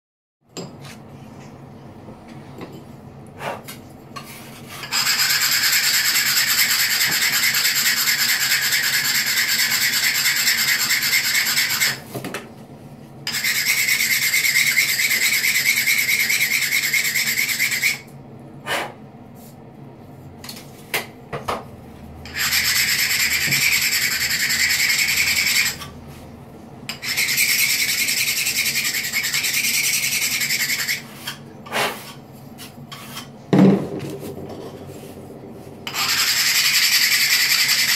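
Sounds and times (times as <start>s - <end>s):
tile scraping on abrasive stone: 4.2s - 12.0s, 13.3s - 18.1s, 22.2s - 25.9s, 26.9s - 33.3s, 35.8s - 37.9s.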